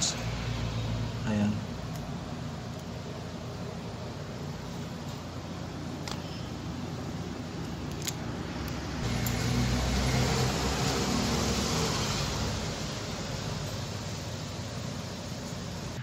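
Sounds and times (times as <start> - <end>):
steady background hiss: 11.0 - 16.0.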